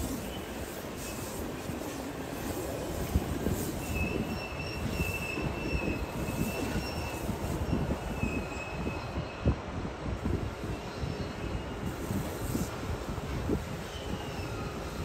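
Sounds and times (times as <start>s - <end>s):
low train rumble: 0.0s - 15.0s
train wheels squealing on rails: 0.0s - 15.0s.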